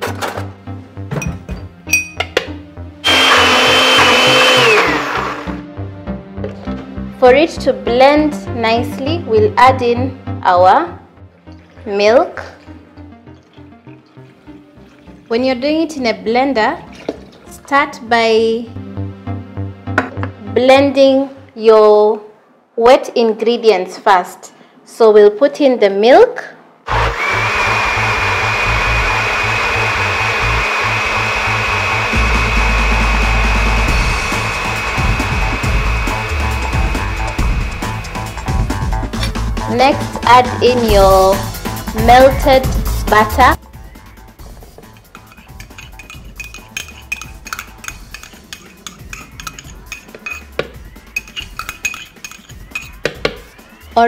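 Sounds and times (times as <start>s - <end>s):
metal spoon clinking ceramic cup: 1.2s - 2.4s, 44.8s - 53.2s
electric blender motor whining: 3.0s - 5.6s, 26.9s - 38.7s.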